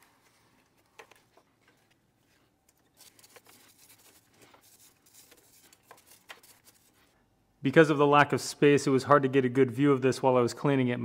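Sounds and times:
nylon brush scrubbing: 2.9 - 7.2.

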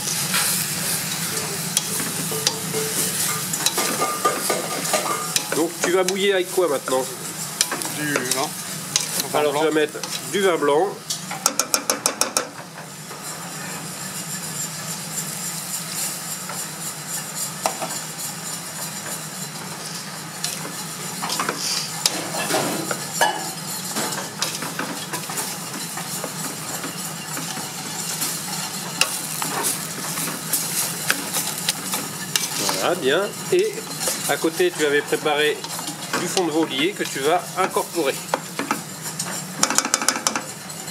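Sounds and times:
meat sizzling in a pot: 0.0 - 40.9
spatula scraping a pot: 21.2 - 40.8.

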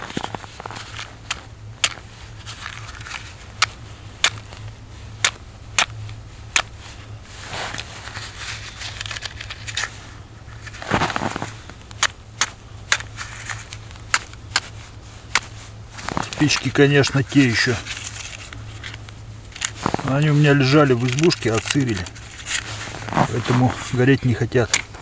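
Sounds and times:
matches clicking and snapping: 17.4 - 22.7.

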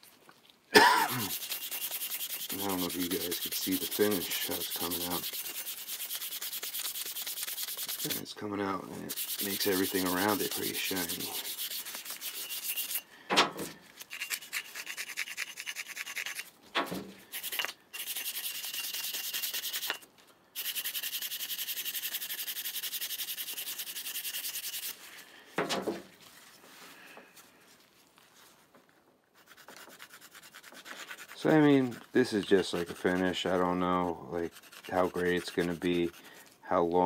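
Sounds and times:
rubbing on a steel chisel: 1.1 - 8.3, 9.1 - 13.1, 14.0 - 16.5, 17.3 - 20.0, 20.6 - 25.1, 29.4 - 36.7.

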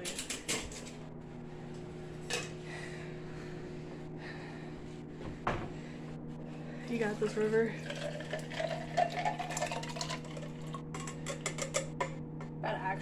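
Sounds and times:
microwave oven humming: 0.0 - 13.0.

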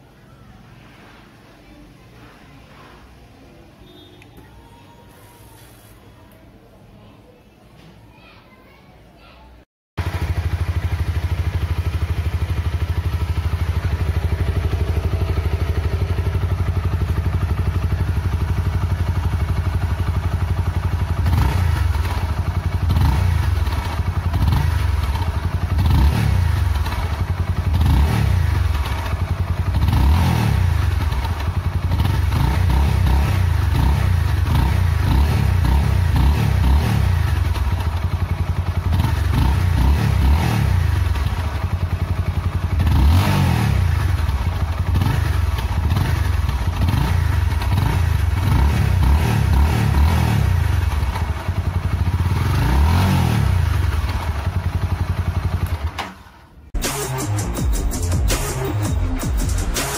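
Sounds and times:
motorcycle engine idling and revving: 10.0 - 59.9.

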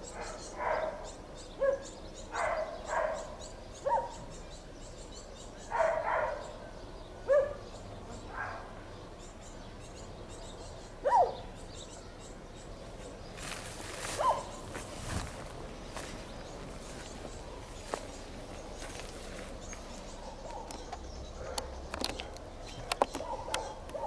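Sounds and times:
dog barking: 0.1 - 4.2, 5.7 - 6.6, 7.3 - 7.6, 8.3 - 8.8, 11.0 - 11.5, 14.2 - 14.6, 20.2 - 21.8, 23.2 - 24.0.

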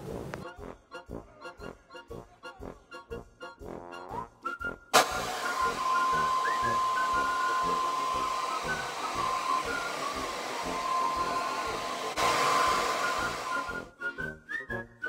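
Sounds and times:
hair dryer blowing: 5.0 - 13.9.

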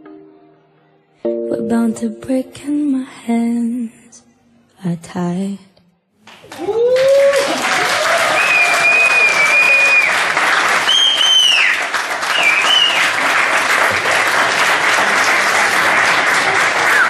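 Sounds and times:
people applauding: 6.2 - 17.0
high cheers: 6.4 - 17.0.

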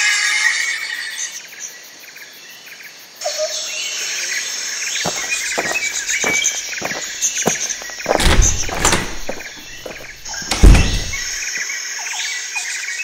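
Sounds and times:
heavy low thumps: 5.1 - 11.4.

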